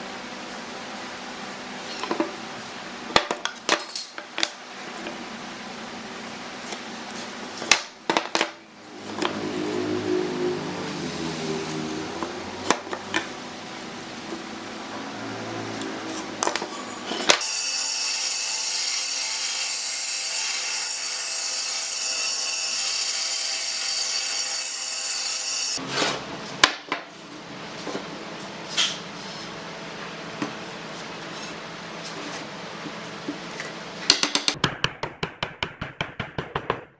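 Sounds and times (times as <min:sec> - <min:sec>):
band saw cutting wood: 0:08.9 - 0:13.4, 0:15.0 - 0:26.3.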